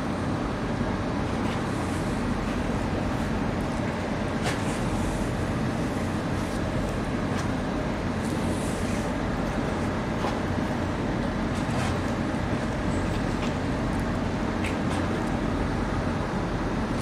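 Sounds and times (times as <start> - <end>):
ship engine rumble: 0.0 - 17.0.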